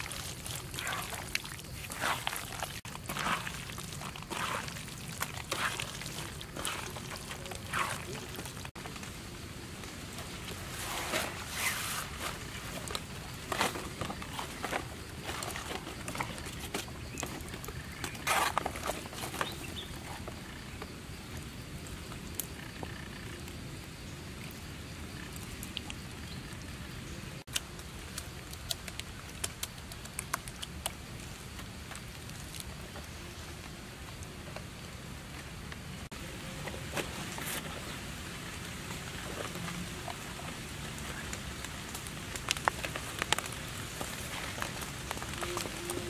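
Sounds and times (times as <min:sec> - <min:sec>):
leaves rustling and crinkling: 0:00.0 - 0:23.2, 0:27.4 - 0:46.0
outdoor hiss: 0:08.2 - 0:13.8.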